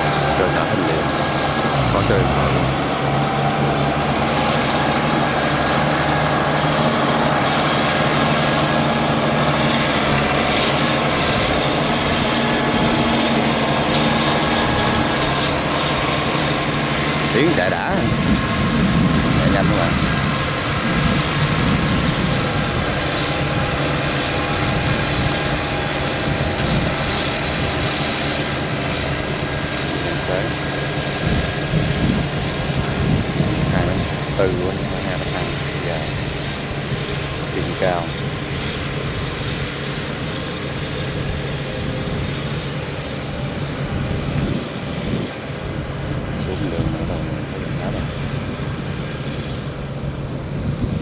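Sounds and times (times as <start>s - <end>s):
diesel engine running under load: 0.0s - 51.0s
tiller churning wet mud: 0.0s - 51.0s.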